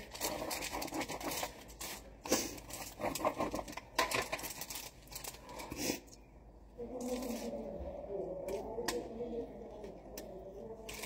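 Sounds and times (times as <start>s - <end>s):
pizza cutter crunching crust: 0.0s - 5.8s.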